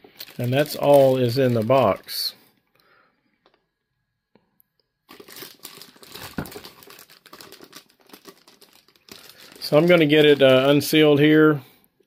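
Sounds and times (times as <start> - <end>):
plastic wrapping crinkling: 0.0 - 2.3, 5.0 - 11.4.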